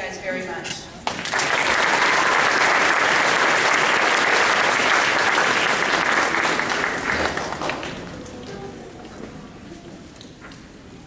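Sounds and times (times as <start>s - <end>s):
audience applauding: 1.1s - 8.7s.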